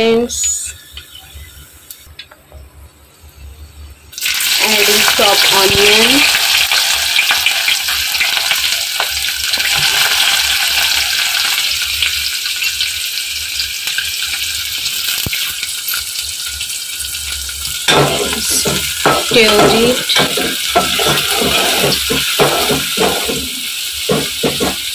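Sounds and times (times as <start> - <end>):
onions sizzling in oil: 4.1 - 24.9.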